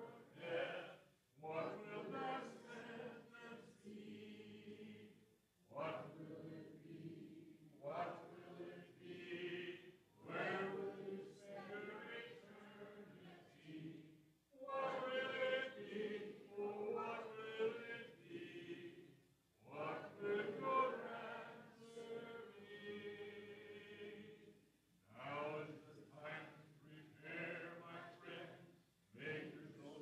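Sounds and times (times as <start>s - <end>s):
congregation singing a hymn: 0.0s - 30.0s.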